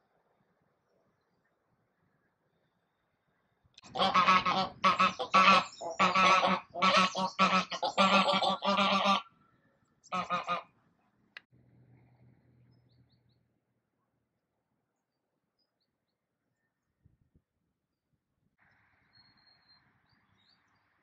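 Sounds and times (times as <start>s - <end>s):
geese honking: 3.8s - 9.3s, 10.1s - 10.7s.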